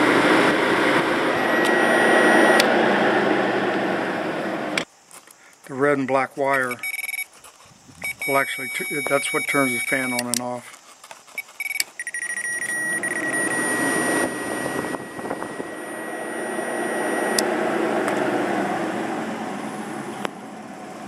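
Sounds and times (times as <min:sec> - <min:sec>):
electric cooling fan rushing air: 0:00.0 - 0:04.8, 0:12.4 - 0:21.0
high fan whine: 0:00.0 - 0:04.9, 0:11.8 - 0:21.0.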